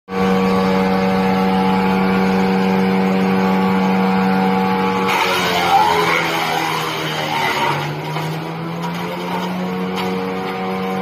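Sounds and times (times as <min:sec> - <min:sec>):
wood chipper humming: 0:00.1 - 0:11.0
blades chipping log: 0:05.0 - 0:11.0.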